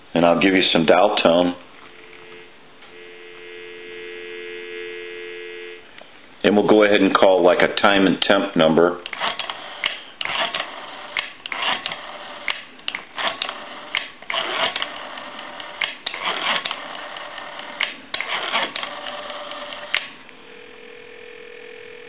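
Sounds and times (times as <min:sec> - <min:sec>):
telephone ringing tone: 0:01.8 - 0:05.9.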